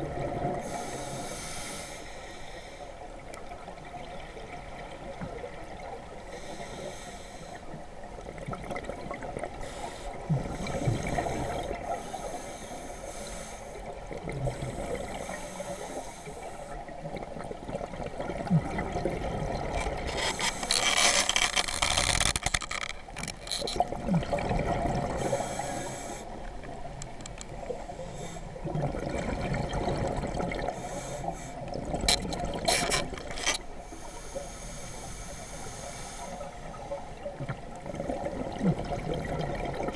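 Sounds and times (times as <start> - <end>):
scuba regulator breath hiss: 0.6 - 3.0, 6.3 - 7.8, 9.6 - 13.8, 14.6 - 16.8, 25.2 - 26.4, 27.9 - 28.5, 30.7 - 31.7, 33.8 - 36.7
exhaled bubbles: 17.1 - 20.8, 23.6 - 25.4, 28.6 - 30.8, 31.7 - 33.3, 37.2 - 39.9.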